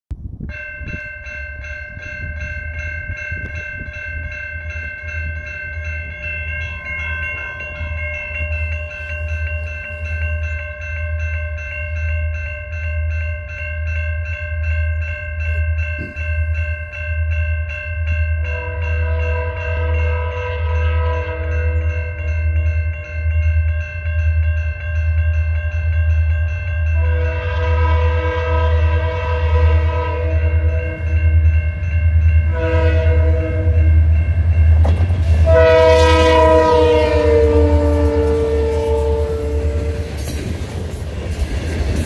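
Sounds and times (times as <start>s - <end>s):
crossing bell ringing: 0.3s - 42.0s
locomotive air horn: 18.5s - 22.0s, 27.0s - 31.2s, 32.5s - 34.0s, 35.3s - 40.2s.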